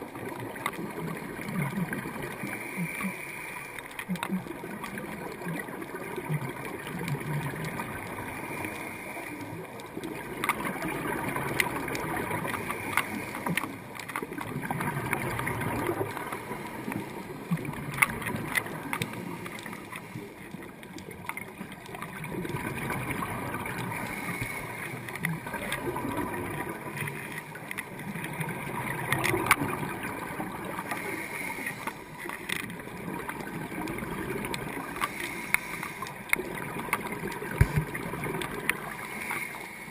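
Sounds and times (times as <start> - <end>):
underwater air bubbles gurgling: 0.0 - 39.9.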